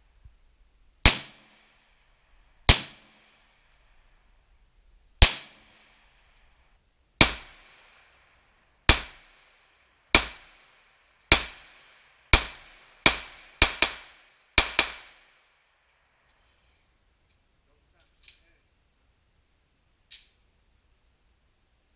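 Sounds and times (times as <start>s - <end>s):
pistol shots with ringing echo: 1.0s - 2.0s, 2.7s - 3.7s, 5.2s - 6.3s, 7.2s - 15.6s.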